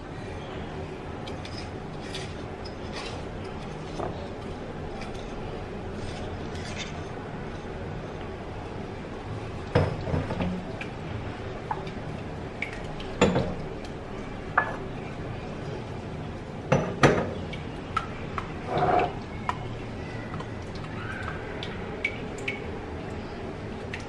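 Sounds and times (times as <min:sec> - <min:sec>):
spatula scraping glass bowl: 0:18.7 - 0:19.2.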